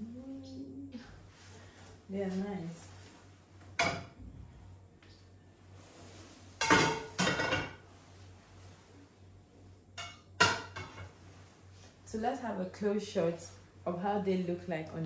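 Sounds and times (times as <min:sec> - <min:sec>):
pans clanking on metal grates: 0:06.6 - 0:07.8, 0:10.0 - 0:11.2.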